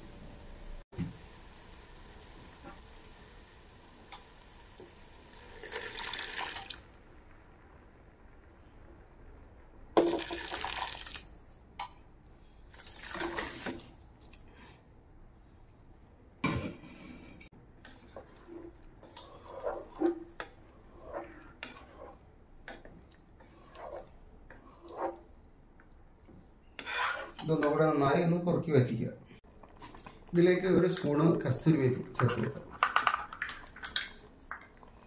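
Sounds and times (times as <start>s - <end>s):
liquid pouring into pot: 5.2s - 6.9s, 10.0s - 11.3s
spatula scraping and stirring curry: 16.4s - 28.0s.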